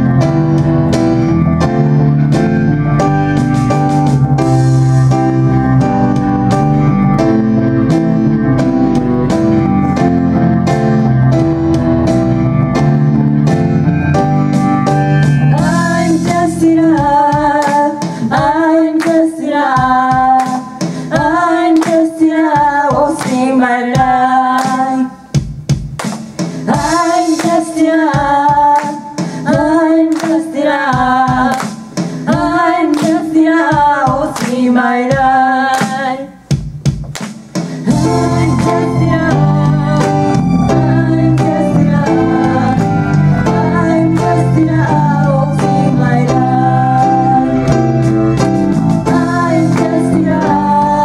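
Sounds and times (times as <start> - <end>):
electric bass: 0.0 - 17.2, 37.9 - 51.0
keyboard: 0.0 - 51.0
woman singing: 15.5 - 25.2, 26.7 - 36.4, 37.9 - 47.8, 49.1 - 51.0
hand claps: 19.0 - 19.3, 20.4 - 20.9, 21.7 - 22.1, 23.2 - 23.5, 25.9 - 26.5, 30.1 - 30.5, 31.5 - 32.1, 32.9 - 33.3, 34.4 - 34.6, 35.7 - 36.0, 36.9 - 37.7.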